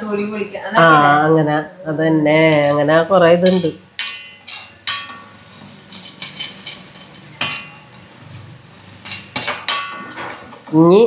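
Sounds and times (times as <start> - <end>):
garlic frying in oil: 2.4 - 11.0
metal spoon scraping a pan: 2.5 - 10.6
spoon clinking against pan: 3.4 - 8.0.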